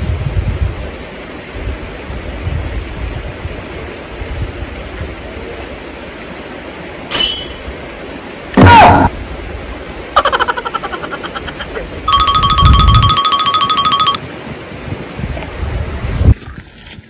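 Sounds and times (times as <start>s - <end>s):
wind buffeting microphone: 0.0s - 5.4s, 14.5s - 17.0s.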